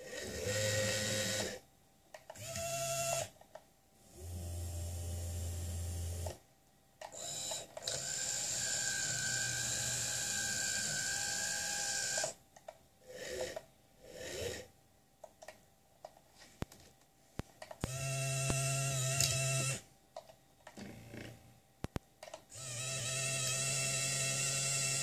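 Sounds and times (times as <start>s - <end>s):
small electric motors whirring: 0.0s - 1.6s, 2.4s - 3.3s, 7.1s - 12.4s, 17.8s - 19.8s, 22.5s - 25.0s.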